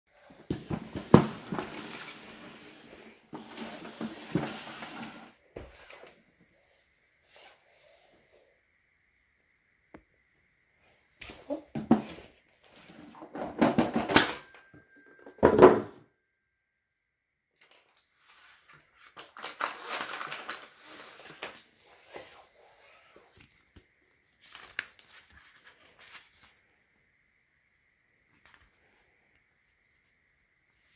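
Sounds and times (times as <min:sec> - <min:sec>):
cardboard box scraping on wood floor: 0:00.4 - 0:06.2
paper and packaging rustling: 0:18.5 - 0:26.6.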